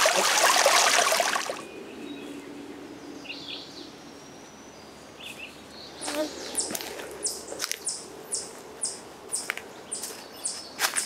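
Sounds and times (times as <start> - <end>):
stream rushing and trickling: 0.0 - 1.8.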